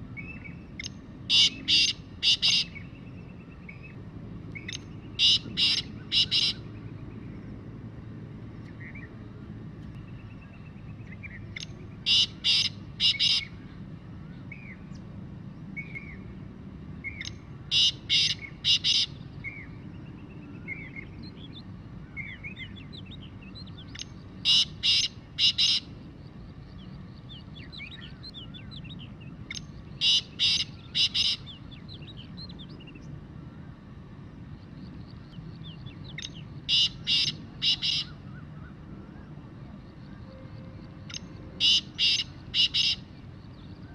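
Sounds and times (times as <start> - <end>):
francolin calling: 0.0 - 4.0, 4.6 - 7.0, 11.2 - 13.8, 17.0 - 33.0, 34.6 - 43.9
faint birds twittering: 0.0 - 43.9.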